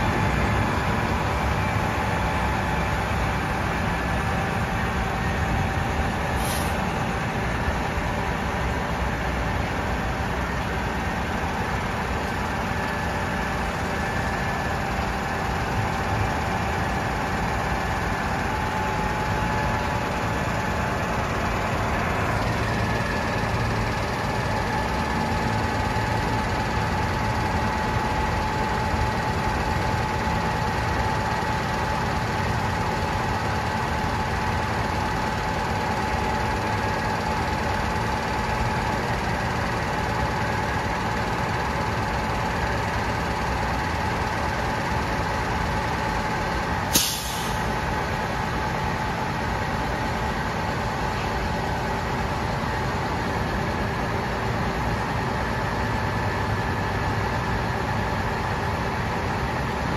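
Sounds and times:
diesel truck running: 0.0 - 59.9
air hiss burst: 6.4 - 6.8, 46.9 - 47.6.

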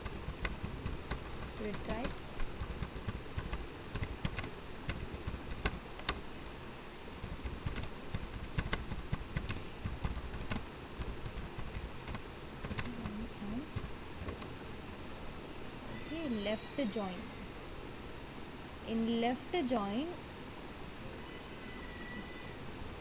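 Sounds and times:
typing on computer keyboard: 0.0 - 6.2, 7.2 - 14.4
low background rumble: 0.0 - 21.3.

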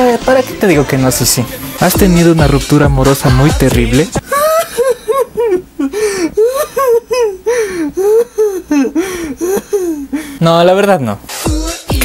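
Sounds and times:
person wailing: 4.2 - 10.3.

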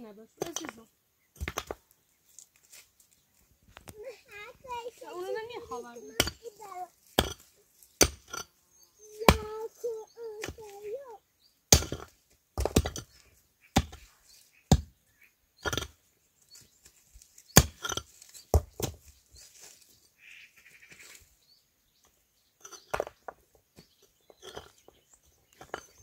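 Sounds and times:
tool chopping into wood: 11.7 - 13.1.

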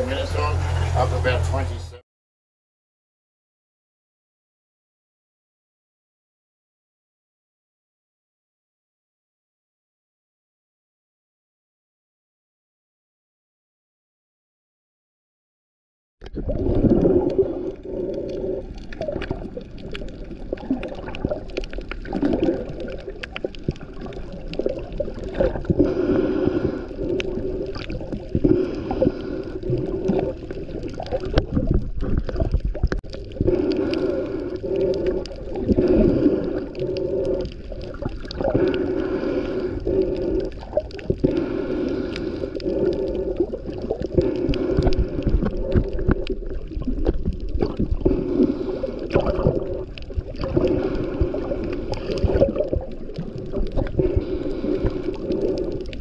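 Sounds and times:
underwater rush of water: 16.2 - 56.0.

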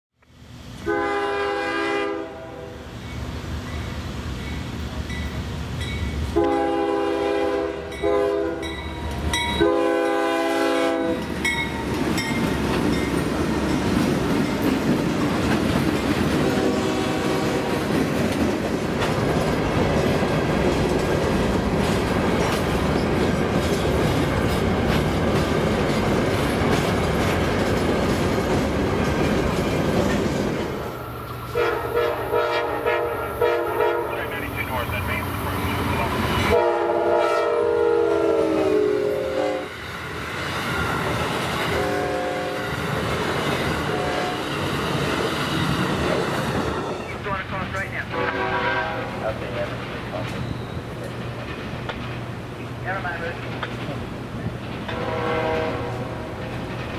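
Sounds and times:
train air horn blowing: 0.8 - 2.9, 6.3 - 8.7, 9.6 - 11.3, 16.3 - 17.9, 31.5 - 34.4, 36.4 - 39.7, 41.7 - 42.7, 43.8 - 44.5, 48.1 - 49.4, 54.9 - 56.3
train wheels clattering over rails: 11.0 - 31.6, 39.8 - 48.7, 49.4 - 56.9.

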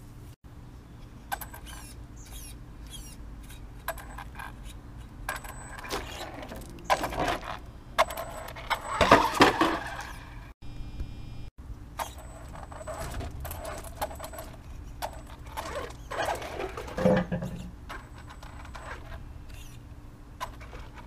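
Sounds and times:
tyres clattering on stone: 15.1 - 19.1.

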